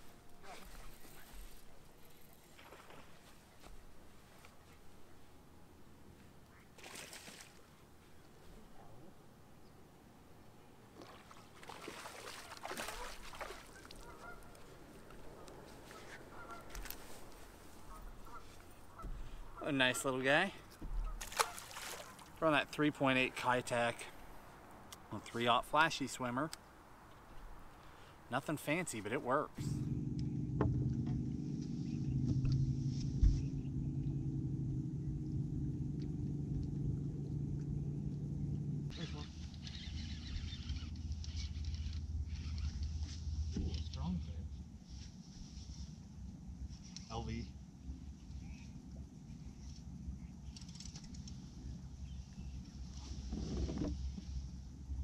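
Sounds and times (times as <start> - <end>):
boat motor humming: 10.3 - 24.5, 29.0 - 55.0
fish splashing at surface: 11.0 - 14.0, 21.2 - 22.3
geese honking faintly: 12.3 - 22.6
low thump: 30.5 - 31.3.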